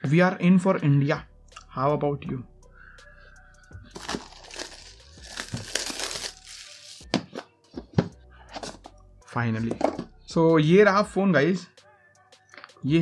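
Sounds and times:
plastic wrapping tearing and crinkling: 3.9 - 7.1.

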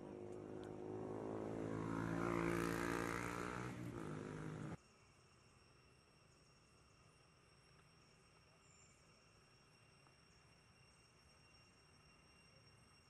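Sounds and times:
vehicle engine running: 0.0 - 4.8.

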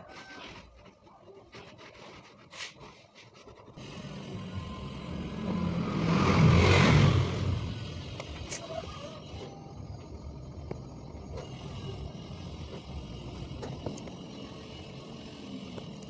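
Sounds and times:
motor vehicle passing by: 3.8 - 9.5.

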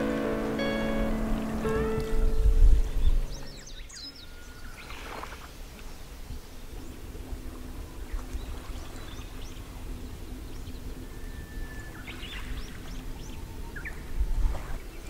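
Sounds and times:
low rumble: 0.0 - 4.1
warbler singing: 0.0 - 4.9
small birds chirping: 0.0 - 5.1.

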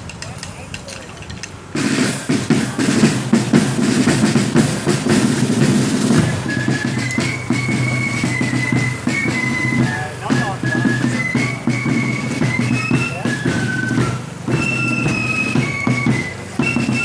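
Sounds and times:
side drums and bass drum: 0.0 - 17.0
flute melody: 1.8 - 17.0.

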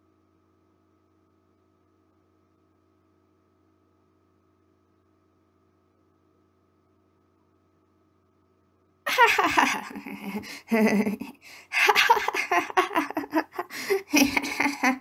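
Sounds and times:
person laughing like a hyena: 9.1 - 15.0.

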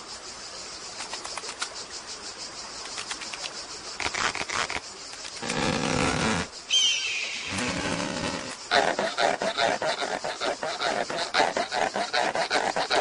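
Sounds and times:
faint clicks: 1.0 - 1.8, 2.8 - 5.6
low wavering creature call: 6.7 - 8.2.

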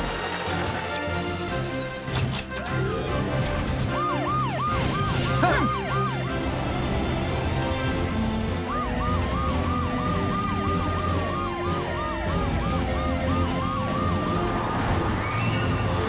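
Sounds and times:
background music: 0.0 - 16.0
cartoon siren wail: 2.7 - 15.3
cartoon siren yelp: 3.9 - 6.4, 8.5 - 14.4.

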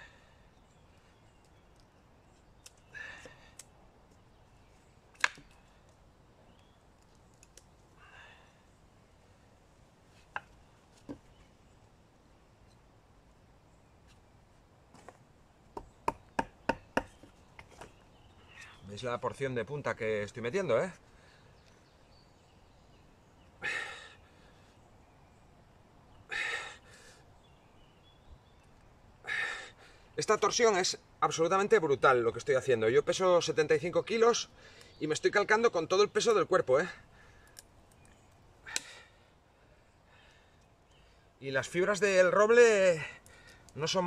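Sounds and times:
man exhaling heavily: 23.6 - 24.2, 26.3 - 27.2, 29.2 - 30.0.

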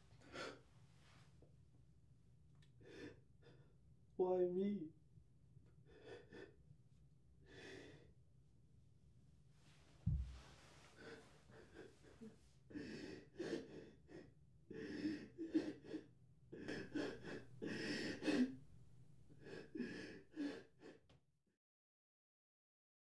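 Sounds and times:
boy sobbing: 14.9 - 18.6.

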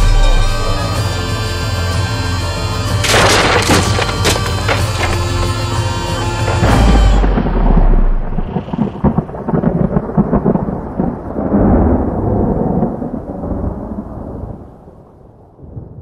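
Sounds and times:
thunder rumbling and crackling: 6.4 - 16.0.

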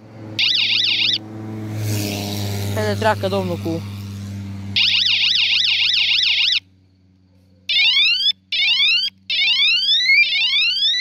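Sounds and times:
electronic bicycle siren whooping: 0.4 - 1.3, 4.8 - 6.7, 7.7 - 11.0.

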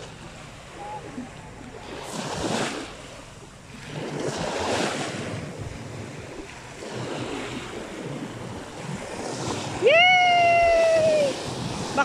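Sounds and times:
sea waves breaking on shore: 0.0 - 12.0.

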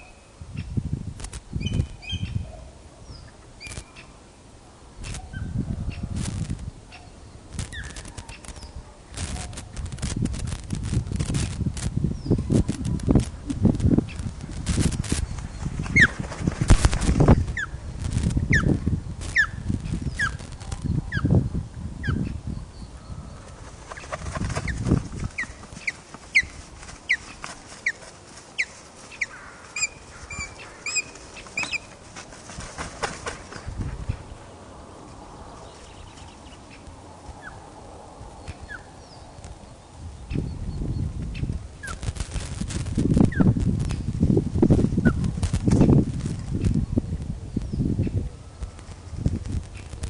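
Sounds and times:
flapping wings thudding: 12.6 - 18.4, 23.6 - 28.9, 31.0 - 34.0.

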